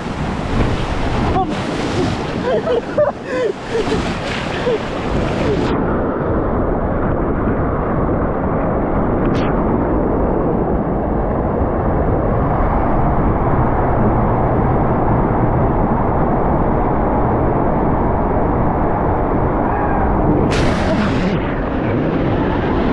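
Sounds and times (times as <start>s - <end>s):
water rushing under a raft: 0.0s - 5.8s.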